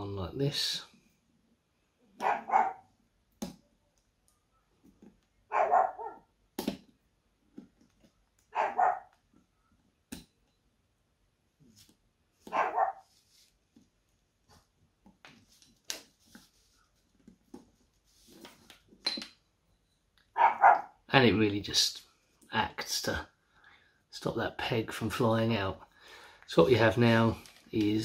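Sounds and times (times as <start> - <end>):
dog barking: 2.2 - 2.9, 5.5 - 6.2, 8.5 - 9.1, 12.5 - 13.0, 20.4 - 21.0.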